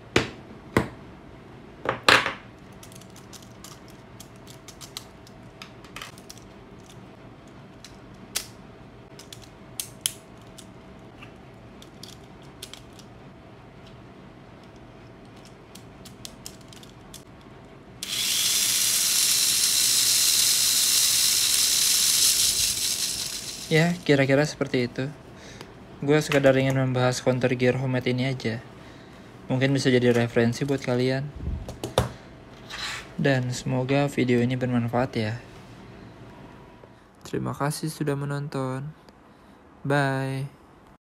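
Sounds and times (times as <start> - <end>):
small electric motor whirring: 18.0 - 24.1.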